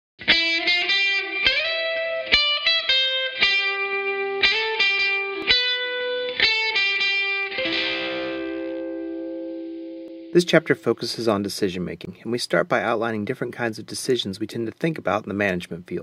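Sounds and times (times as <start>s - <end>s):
distorted electric guitar riff: 0.2s - 11.4s.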